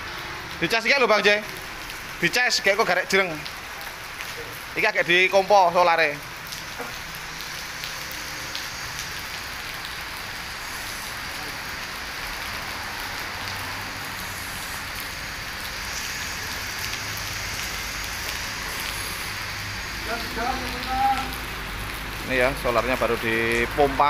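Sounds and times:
steady hiss: 4.8s - 24.0s.

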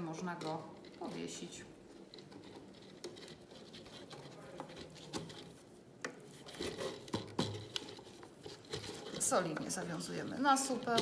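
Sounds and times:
twine rustling: 0.0s - 11.0s
plastic bottle crinkles and taps: 4.6s - 9.7s.

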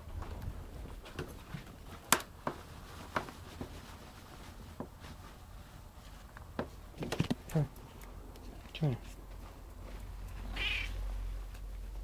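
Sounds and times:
fabric rustling: 0.3s - 8.0s.

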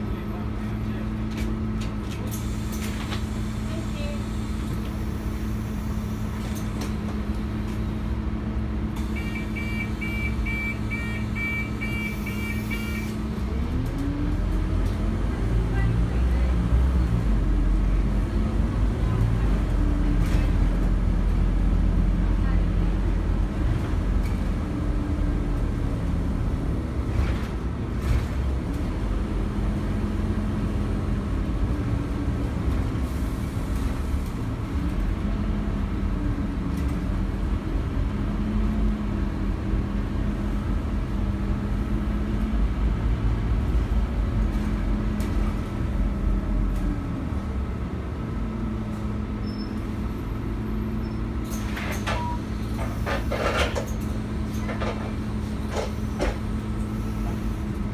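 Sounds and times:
bus engine and road rumble: 0.0s - 57.9s.

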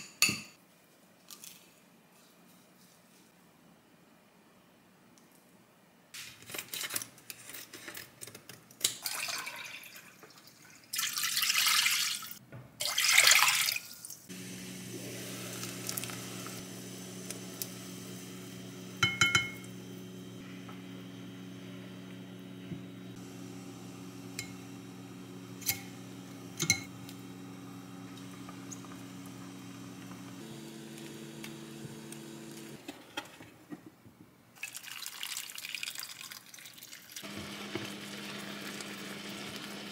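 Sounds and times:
cooktop humming: 14.3s - 34.2s, 37.2s - 39.9s
wooden spoon tapping a pot: 19.0s - 19.6s.

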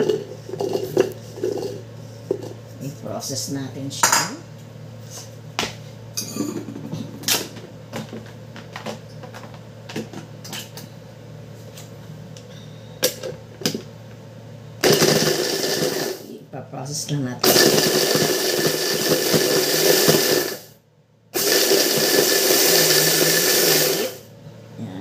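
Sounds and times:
hand blender motor chopping: 14.8s - 16.2s, 17.4s - 20.7s, 21.4s - 24.2s.

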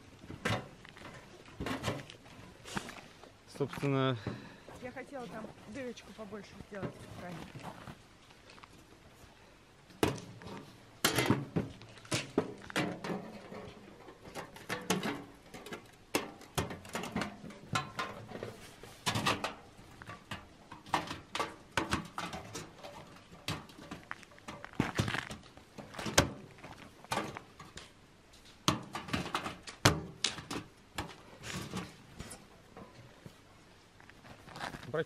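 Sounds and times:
metal panels clicking and clattering: 10.0s - 27.9s, 28.5s - 33.1s.

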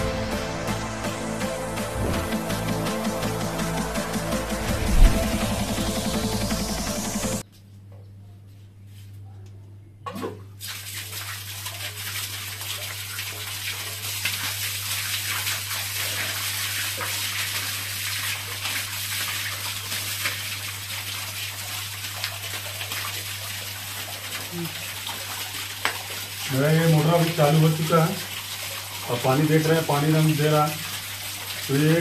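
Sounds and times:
water splashing onto concrete floor: 10.1s - 32.0s.

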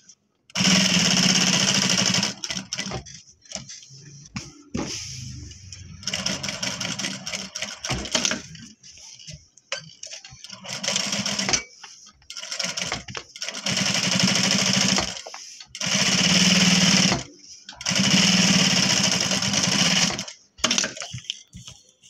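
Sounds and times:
sewing machine stitching: 0.6s - 3.1s, 5.6s - 8.5s, 12.4s - 15.2s, 15.8s - 20.9s.

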